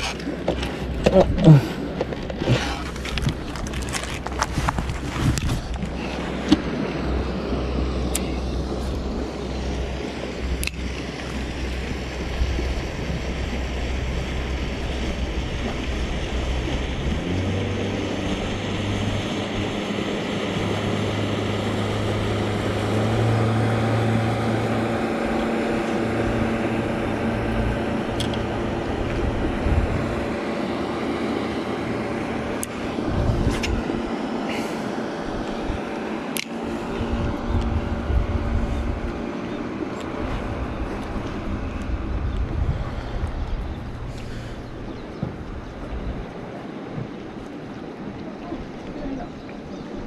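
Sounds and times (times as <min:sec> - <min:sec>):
engine humming: 0:00.0 - 0:50.0.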